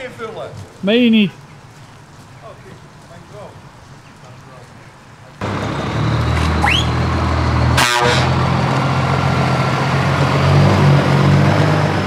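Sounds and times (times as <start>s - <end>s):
truck diesel engine running: 5.4s - 12.0s
truck horn blast: 6.5s - 8.6s.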